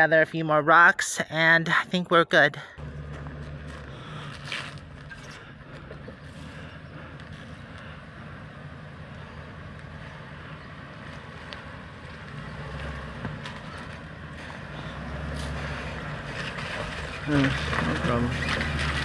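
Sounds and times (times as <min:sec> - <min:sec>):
motorhome engine low drone: 0:02.8 - 0:19.0.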